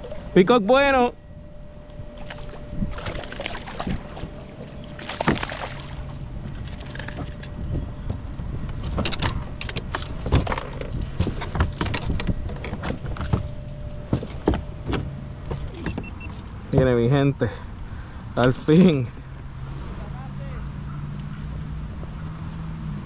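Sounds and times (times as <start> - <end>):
wind rumble on microphone: 1.2 - 14.9
gear clicking and rattling: 2.9 - 4.0, 6.0 - 16.8.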